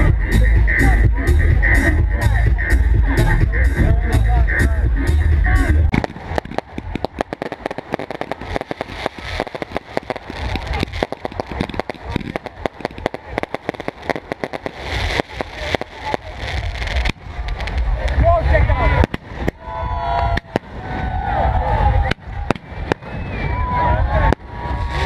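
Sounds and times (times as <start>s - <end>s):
fireworks crackling: 4.3s - 25.0s
fireworks bangs: 5.9s - 25.0s.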